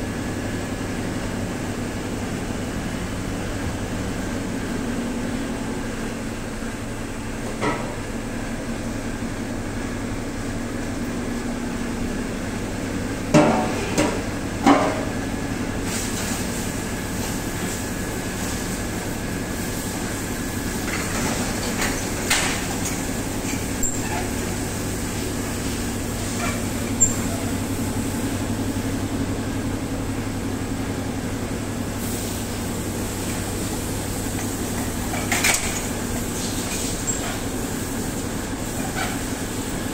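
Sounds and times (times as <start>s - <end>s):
oven mechanical hum: 0.0s - 39.9s.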